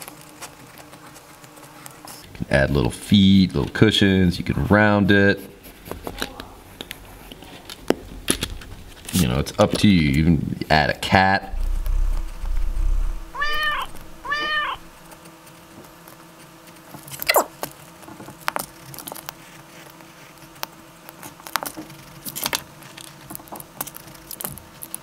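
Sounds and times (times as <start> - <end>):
cat meowing: 13.1 - 15.0.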